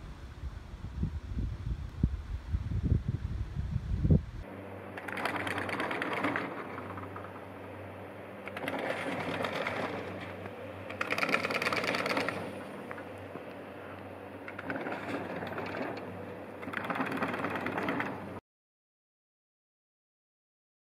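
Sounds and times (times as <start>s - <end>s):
chairlift rope mechanical clatter: 4.6s - 18.4s.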